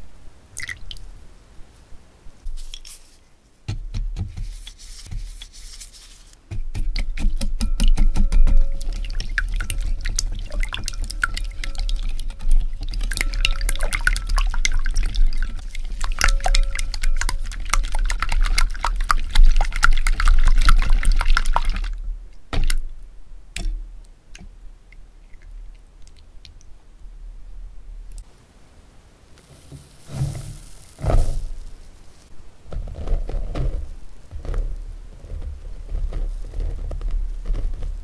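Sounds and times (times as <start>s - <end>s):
whisk clicking against glass bowl: 6.7s - 21.8s
liquid sloshing: 8.2s - 22.8s, 29.4s - 32.3s
faint drips: 8.6s - 22.0s, 24.3s - 26.8s.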